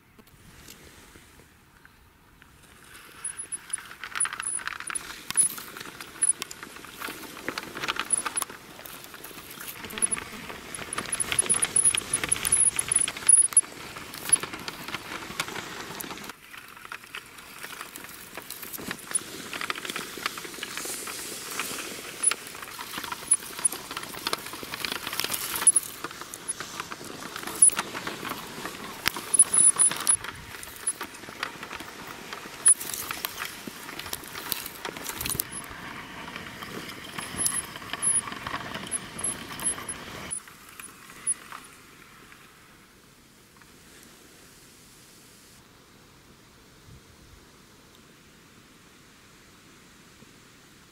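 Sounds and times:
toy tyres scraping through sand: 0.3s - 42.4s
sharp clicks: 9.8s - 13.6s.

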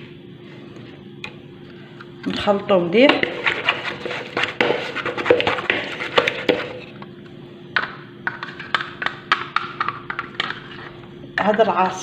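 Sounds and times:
utensil scraping plastic jug: 3.3s - 6.9s.

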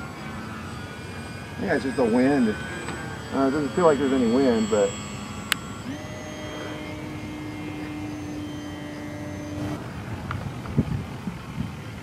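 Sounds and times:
model airplane propeller whine: 0.0s - 12.0s.

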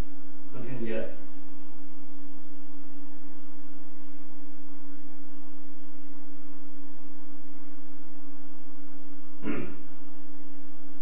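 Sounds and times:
steady pure tone: 0.0s - 11.0s.

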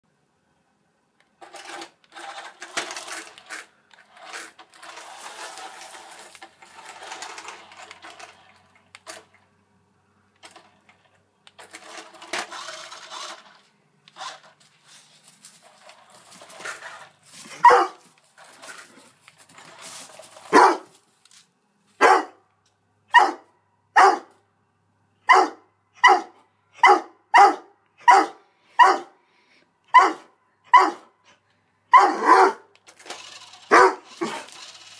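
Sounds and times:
dog barking: 17.6s - 18.0s, 20.5s - 20.9s, 22.0s - 22.4s, 23.1s - 24.3s, 25.3s - 29.2s, 29.9s - 31.1s, 31.9s - 32.7s, 33.7s - 34.4s.

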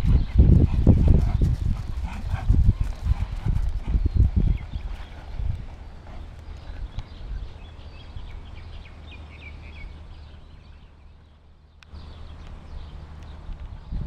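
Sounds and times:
wind on microphone: 0.0s - 9.0s, 12.0s - 14.0s.

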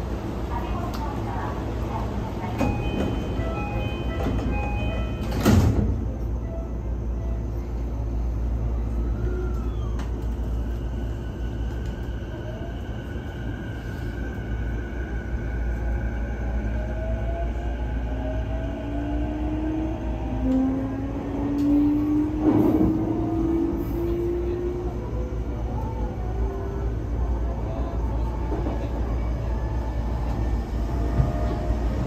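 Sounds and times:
train doors shutting with a thump: 2.4s - 6.4s, 21.4s - 24.2s, 30.2s - 32.0s.

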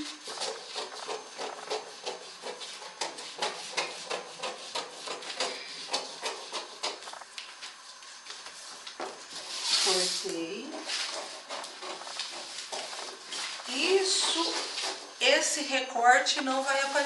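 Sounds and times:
paper rustling: 16.4s - 17.0s.

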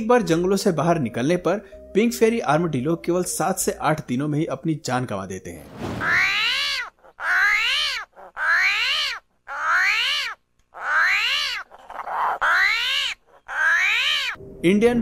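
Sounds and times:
armadillo squealing: 6.0s - 14.4s.

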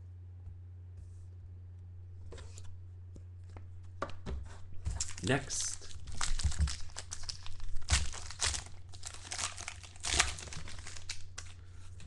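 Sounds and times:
low steady hum: 0.0s - 12.0s
wrapper tearing and crinkling: 5.0s - 11.6s.

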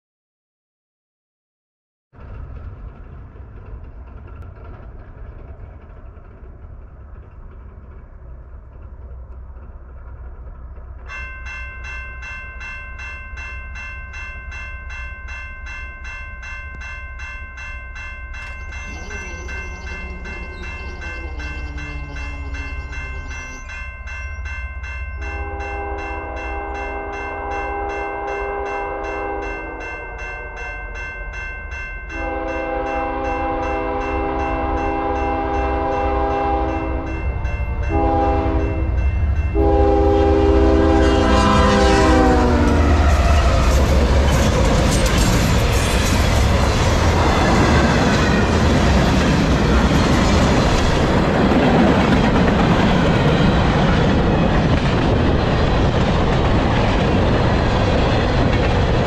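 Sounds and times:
low rumble of train: 2.1s - 59.0s
level crossing bell ringing: 11.1s - 41.0s
train horn blasts: 25.2s - 30.8s, 32.1s - 37.1s, 37.8s - 38.9s, 39.5s - 43.7s.

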